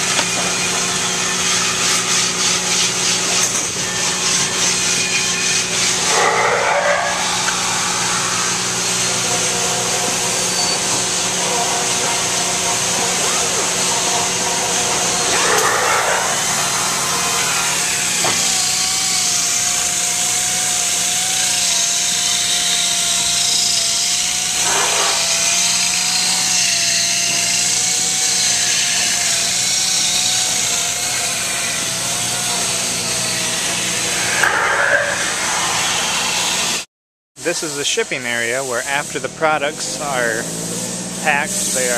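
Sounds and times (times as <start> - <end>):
air sander whining: 0.0 - 36.9, 37.7 - 41.9
factory machinery din: 5.0 - 18.3, 24.3 - 26.0, 32.0 - 36.8.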